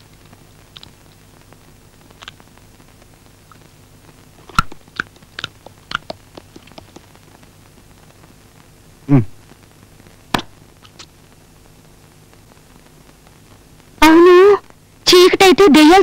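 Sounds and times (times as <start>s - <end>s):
crunching and chewing: 0.7s - 1.0s, 2.2s - 2.4s, 4.5s - 7.0s.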